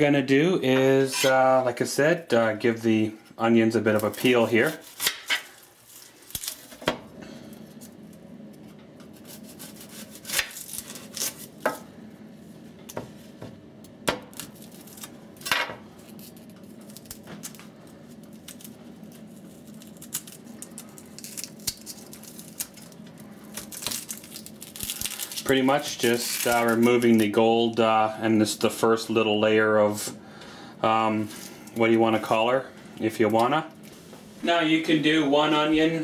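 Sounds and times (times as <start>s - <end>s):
onion skin peeling: 3.8s - 6.8s, 7.5s - 11.7s, 14.2s - 27.4s.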